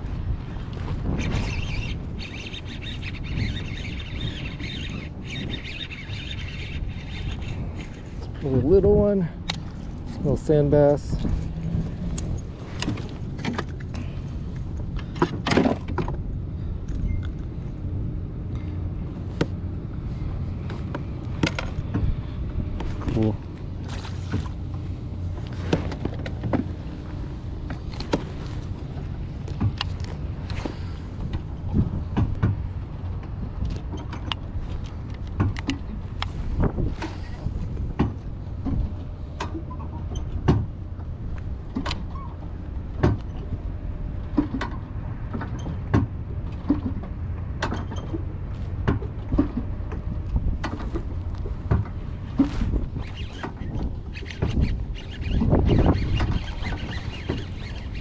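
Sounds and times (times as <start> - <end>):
trolling motor humming: 0.0 - 58.0
birds chattering: 1.3 - 8.4
low rumble: 6.7 - 33.8
fishing tackle clicks and knocks: 29.4 - 31.5, 32.1 - 36.3.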